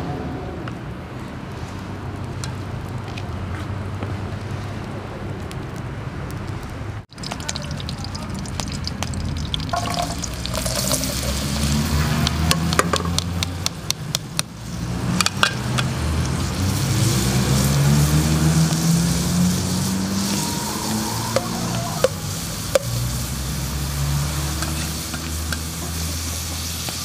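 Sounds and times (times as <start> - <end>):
onions sizzling in hot fat: 7.1 - 27.0
metal spoon scraping pot: 9.7 - 11.6.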